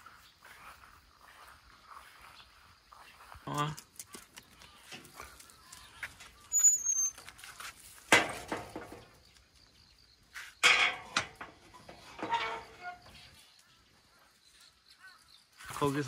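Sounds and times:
faint high bird chirp: 4.4 - 7.8, 12.2 - 16.0.

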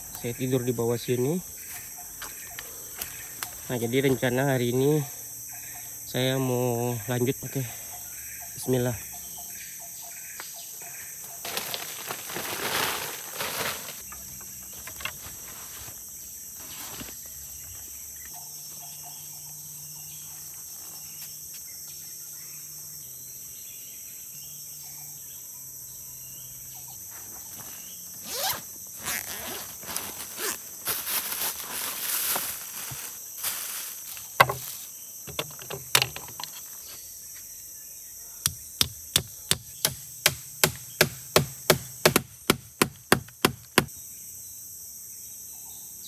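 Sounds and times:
insects chorus: 0.0 - 46.0
rustling and handling noises: 11.4 - 14.1, 14.7 - 17.2, 27.1 - 37.0.

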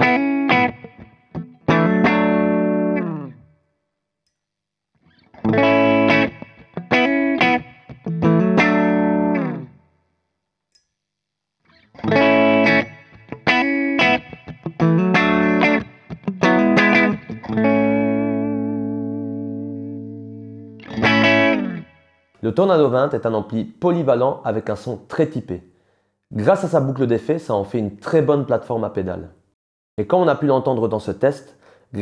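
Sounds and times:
clean electric guitar riff: 0.0 - 3.5, 5.0 - 9.8, 11.7 - 22.3.

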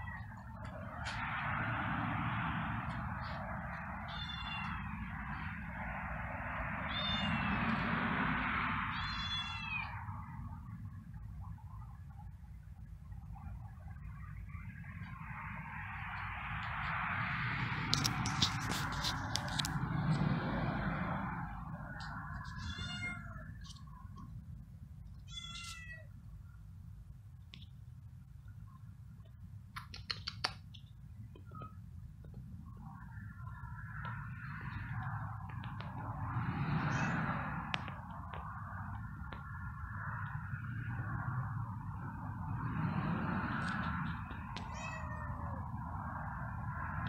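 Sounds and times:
kitten meowing: 4.1 - 4.9, 6.9 - 7.6, 8.9 - 10.0, 22.5 - 23.5, 25.2 - 26.1, 44.6 - 45.3.

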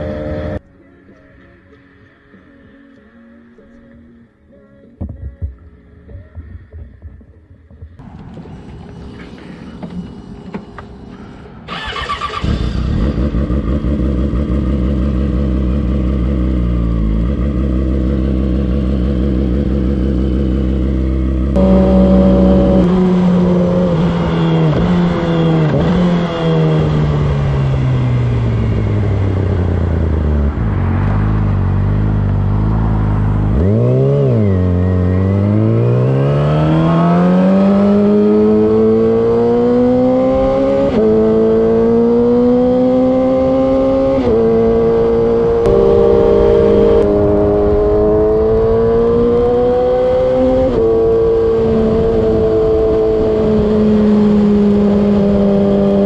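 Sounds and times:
motorcycle engine: 0.0 - 0.6, 7.0 - 56.0.

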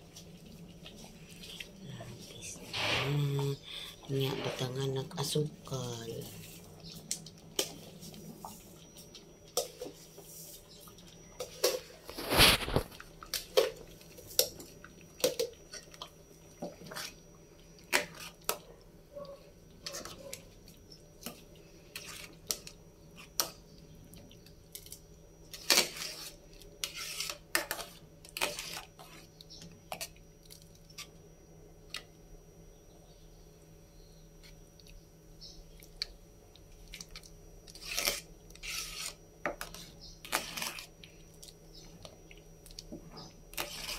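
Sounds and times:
metal ladle scraping a pot: 25.6 - 29.2.

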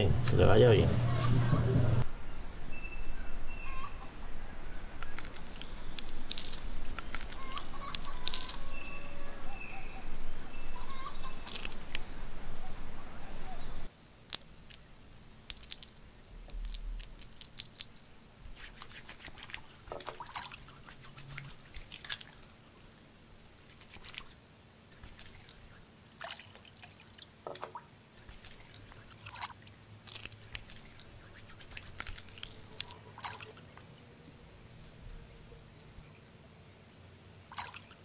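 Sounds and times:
hands squeezing leaves in water: 5.0 - 22.8, 23.6 - 33.8.

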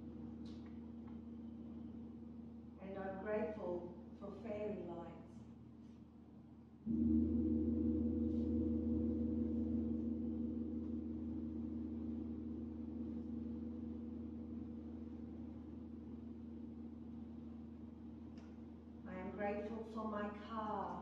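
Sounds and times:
low hum: 0.0 - 21.0
gong ringing: 6.9 - 18.0.

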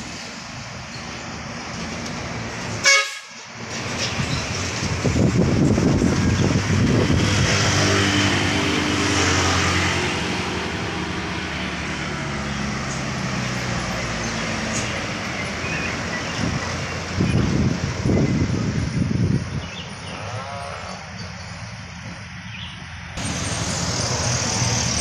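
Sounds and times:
diesel truck engine running: 3.6 - 20.0, 23.2 - 25.0
truck engine rough pulsing: 3.6 - 20.1, 23.2 - 25.0.

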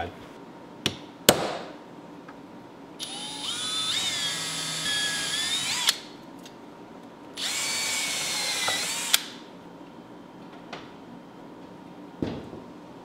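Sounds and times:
cordless drill motor whine: 3.0 - 6.0, 7.4 - 9.2.

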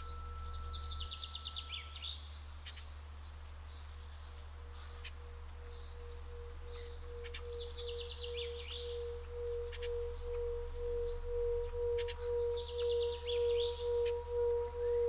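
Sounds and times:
singing bowl ringing: 0.0 - 2.2, 5.6 - 15.0
songbird trilling: 0.0 - 15.0.

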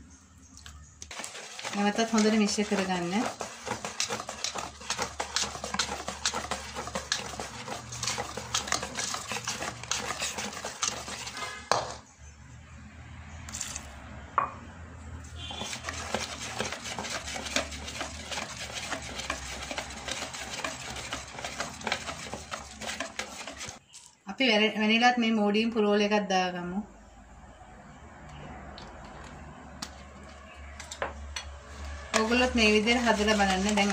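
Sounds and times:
whisk clicking against metal bowl: 1.1 - 11.7, 15.6 - 23.8, 31.4 - 33.9.

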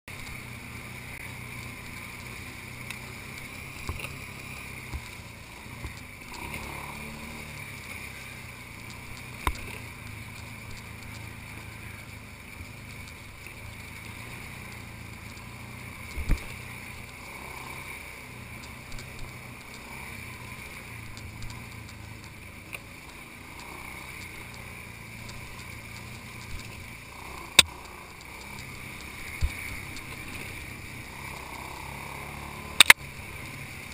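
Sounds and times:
atv engine running: 0.0 - 33.9.

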